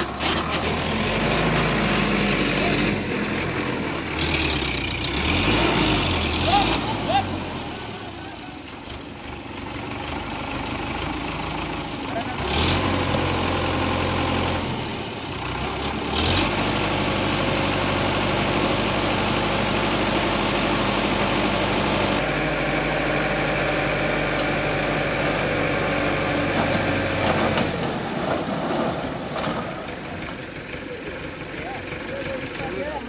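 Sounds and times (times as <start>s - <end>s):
tractor diesel engine running: 0.0s - 33.0s.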